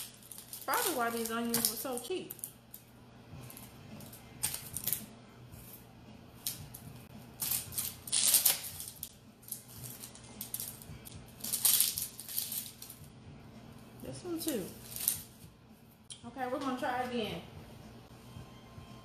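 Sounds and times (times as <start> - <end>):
onion skin crackling: 0.0 - 2.8, 7.3 - 13.0, 14.6 - 15.5.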